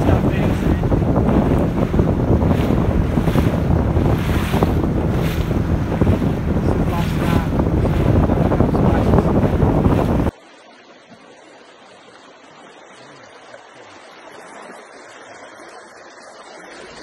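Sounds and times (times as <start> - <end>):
wind buffeting microphone: 0.0 - 10.3
creek flowing: 0.0 - 17.0.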